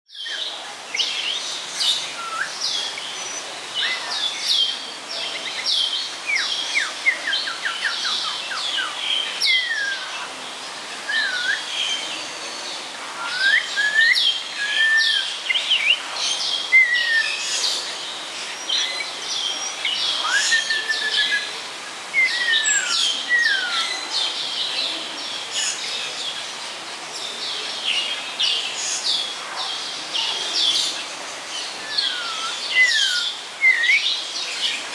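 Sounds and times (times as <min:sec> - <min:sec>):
bird singing chirps and whistles: 0:00.2 - 0:04.6, 0:06.3 - 0:10.3, 0:11.1 - 0:12.2, 0:13.2 - 0:16.0, 0:16.7 - 0:17.8, 0:19.8 - 0:21.5, 0:22.2 - 0:24.0, 0:31.8 - 0:34.7.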